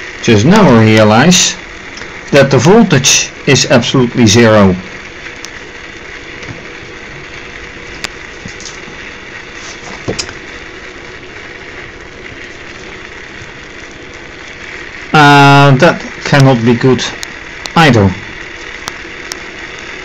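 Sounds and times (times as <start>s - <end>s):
mechanical hum with faint tone: 0.0s - 20.0s.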